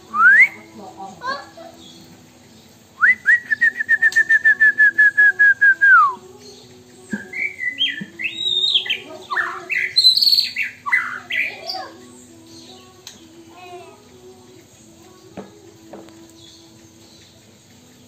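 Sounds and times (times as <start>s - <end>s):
bird singing whistled notes: 0.0s - 0.8s, 1.6s - 13.8s.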